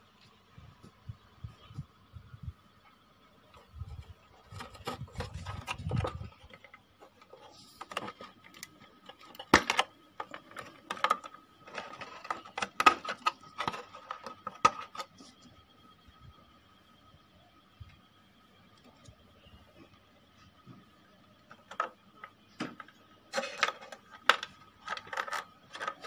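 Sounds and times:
faint steady high tone: 0:00.0 - 0:26.0
clicks knocks and rustles of handling: 0:03.6 - 0:15.5, 0:21.5 - 0:26.0.

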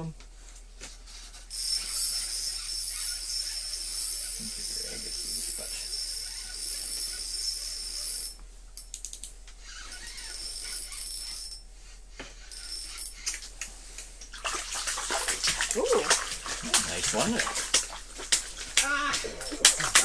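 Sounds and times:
fishing reel ratcheting whir: 0:01.3 - 0:08.4, 0:09.0 - 0:11.6, 0:12.4 - 0:13.5.

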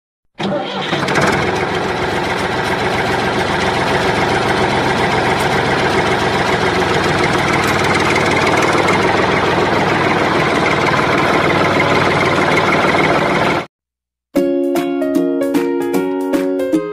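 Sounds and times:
tractor engine idling: 0:00.4 - 0:13.7.

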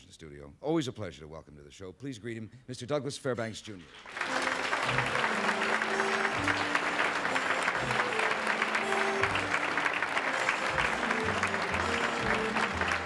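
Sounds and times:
audience applauding: 0:03.9 - 0:13.0
music playing: 0:04.1 - 0:13.0.

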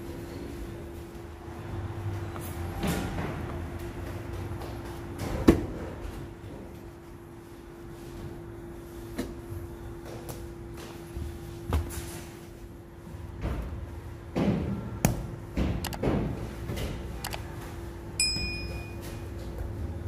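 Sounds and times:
short ringing ping: 0:18.2 - 0:19.0.

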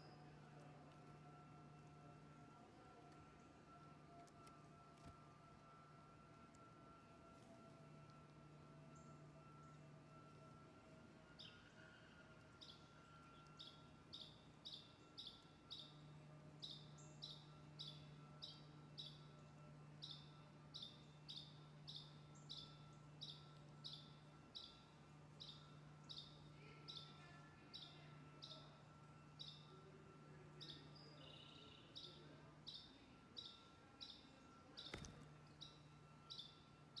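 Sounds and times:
woodpecker chirping: 0:12.5 - 0:16.0, 0:16.6 - 0:29.8, 0:30.6 - 0:37.0.

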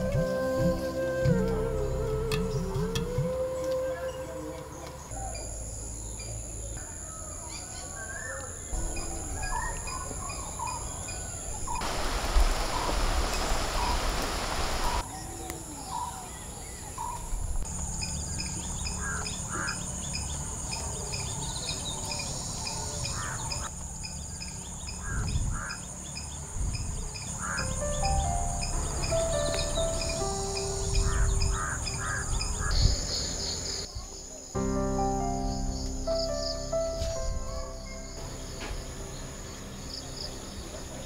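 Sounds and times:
birds chirping: 0:02.2 - 0:41.0
rustling hiss: 0:11.2 - 0:15.0
high insect drone: 0:17.3 - 0:41.0.

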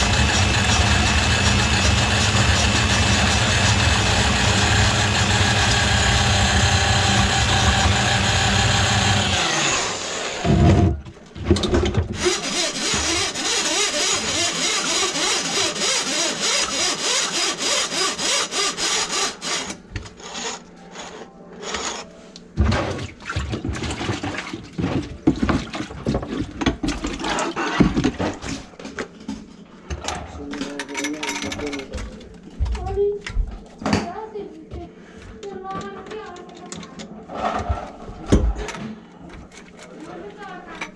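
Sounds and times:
drain machine motor running: 0:00.0 - 0:10.5.

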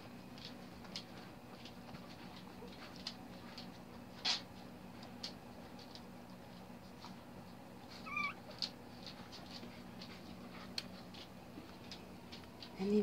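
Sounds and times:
puppies squeaking: 0:08.0 - 0:08.4
puppy mewing whine: 0:08.0 - 0:08.5.

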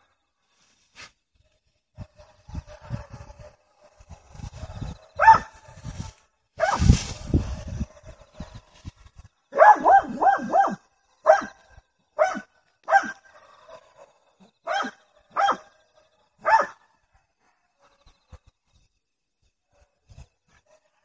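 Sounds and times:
dog barking: 0:02.1 - 0:05.8, 0:06.6 - 0:06.9, 0:09.6 - 0:11.6, 0:12.2 - 0:18.1.

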